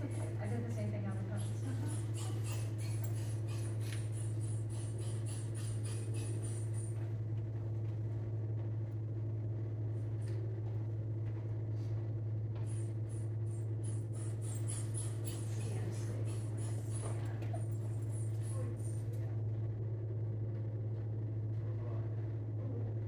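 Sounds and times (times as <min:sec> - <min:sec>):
dog panting: 0:00.0 - 0:07.0, 0:13.8 - 0:19.1
steady low hum: 0:00.0 - 0:23.0.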